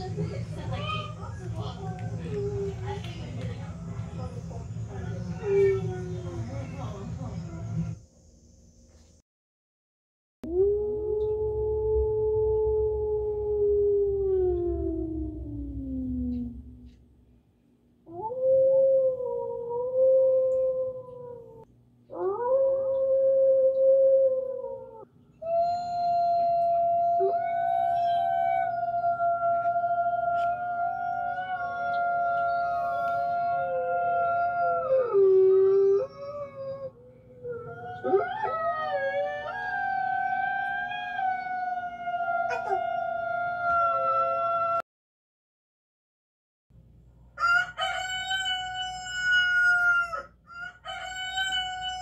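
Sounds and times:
wolf howls through speaker: 0:10.4 - 0:16.9, 0:18.1 - 0:44.8.

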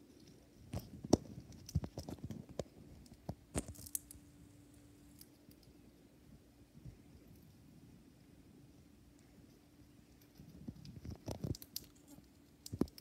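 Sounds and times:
hamster cracking seeds: 0:00.1 - 0:04.3, 0:10.2 - 0:13.0.

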